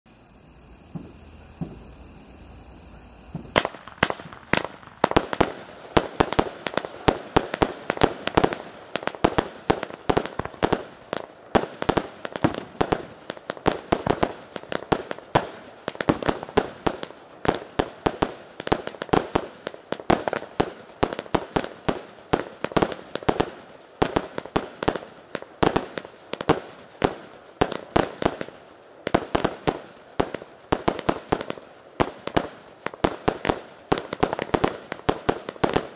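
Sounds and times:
fireworks launch thumps and bangs: 0.9s - 2.0s, 3.2s - 28.5s.

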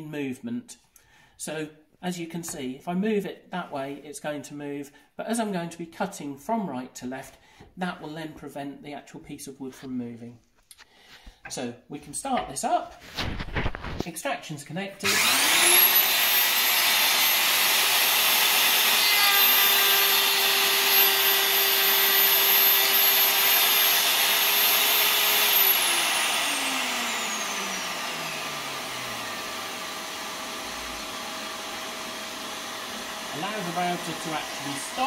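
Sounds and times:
dust extractor running: 15.0s - 35.0s
router whining: 15.0s - 35.0s.

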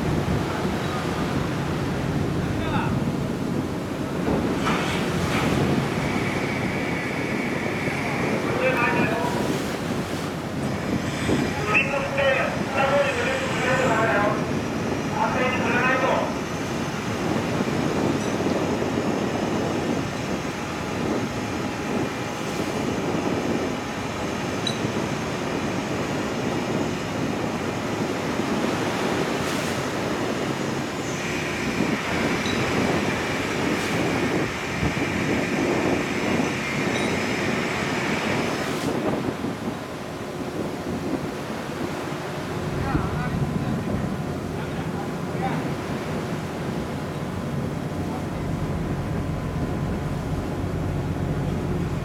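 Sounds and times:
ship engine rumble: 0.0s - 52.0s
water noise: 0.0s - 52.0s
winch whine: 0.0s - 52.0s
wind: 0.0s - 52.0s.

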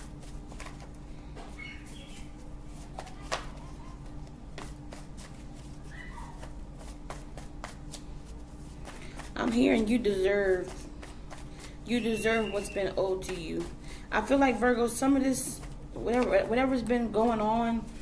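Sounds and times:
cards being shuffled: 0.0s - 11.9s.

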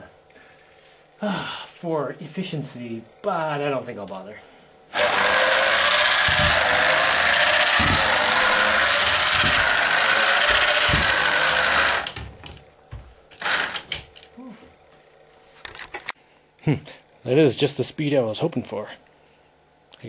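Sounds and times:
motor and gears grinding: 4.9s - 12.7s, 13.3s - 14.3s
robot legs thumping: 5.0s - 14.2s
clicks and knocks: 5.0s - 14.3s.

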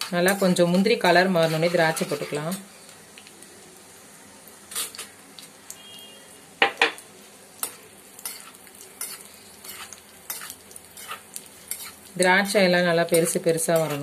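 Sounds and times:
metal spoon scraping a pan: 0.0s - 2.7s, 7.6s - 12.1s, 13.1s - 14.0s
nuts frying with faint sizzle: 0.0s - 14.0s.

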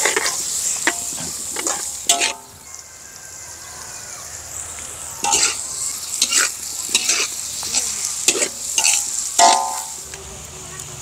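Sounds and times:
metal utensil scraping a pan: 0.0s - 2.6s, 5.2s - 10.0s
food sizzling in a hot pan: 0.0s - 11.0s.

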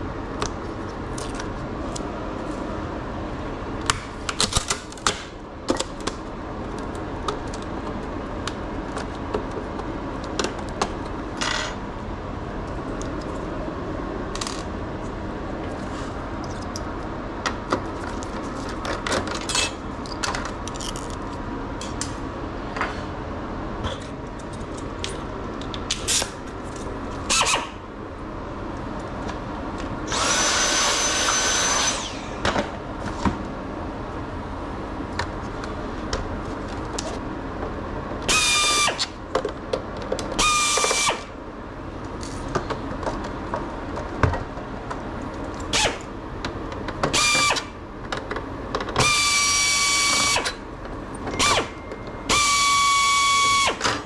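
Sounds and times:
handheld power tool whirring: 27.3s - 27.8s, 30.1s - 32.4s, 38.3s - 39.2s, 40.4s - 41.3s, 47.1s - 47.8s, 49.0s - 50.6s, 51.4s - 54.0s.

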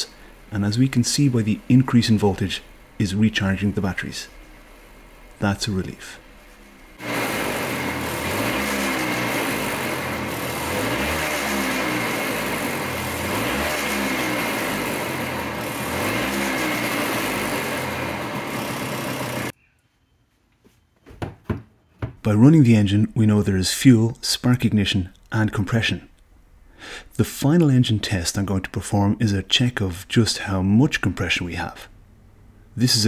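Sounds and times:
scooter engine revving: 6.6s - 19.6s.

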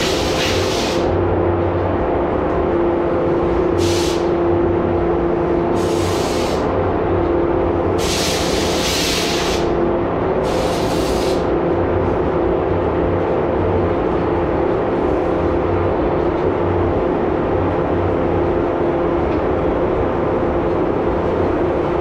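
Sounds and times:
spray gun hiss: 0.0s - 1.1s, 3.8s - 4.3s, 5.8s - 6.7s, 8.0s - 9.8s, 10.4s - 11.5s
exhaust fan droning: 0.0s - 22.0s.

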